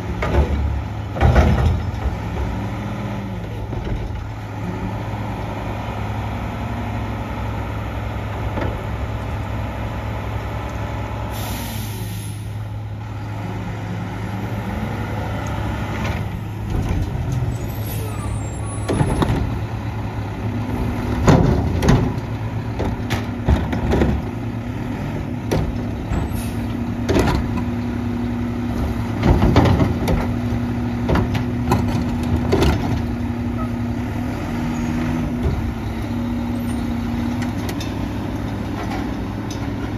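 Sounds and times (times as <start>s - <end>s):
garbage truck engine running: 0.0s - 39.9s
carts clanking and banging: 0.1s - 2.6s, 16.0s - 19.8s, 20.6s - 24.5s, 28.7s - 33.8s, 36.6s - 39.9s
air brake hiss: 11.3s - 12.6s.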